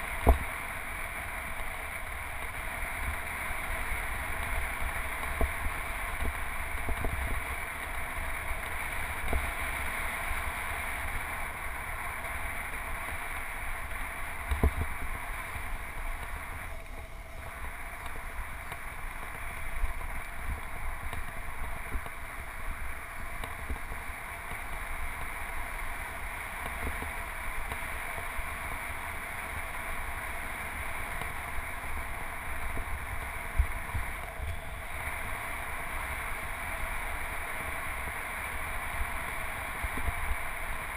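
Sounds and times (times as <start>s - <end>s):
bike tyre noise: 0.0s - 40.9s.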